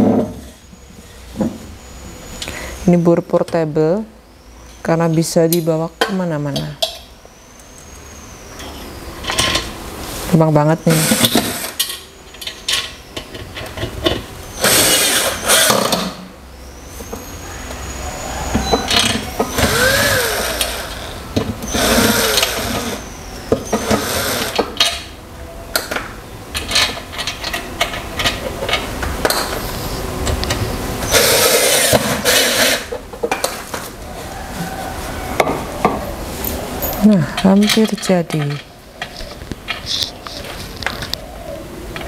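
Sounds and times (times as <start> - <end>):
cordless drill driving bolts: 10.9 - 11.9, 14.5 - 16.2, 18.6 - 23.0, 23.6 - 24.9.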